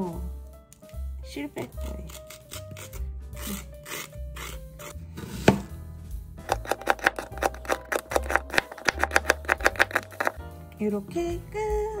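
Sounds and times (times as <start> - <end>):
spoon scraping cucumber seeds: 1.7 - 5.0, 6.4 - 10.4
knife chopping on plastic board: 6.4 - 10.4.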